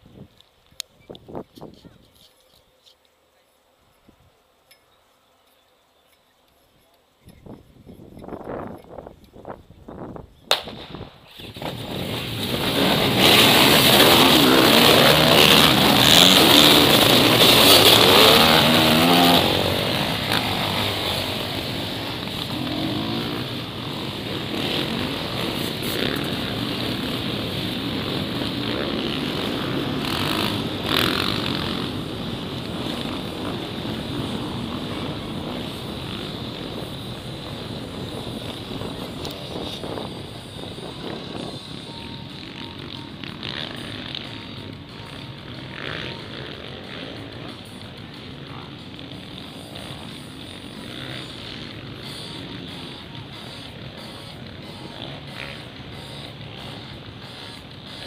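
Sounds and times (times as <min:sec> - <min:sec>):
sharp snap: 0:10.5 - 0:11.8
motorcycle engines revving: 0:11.4 - 0:58.0.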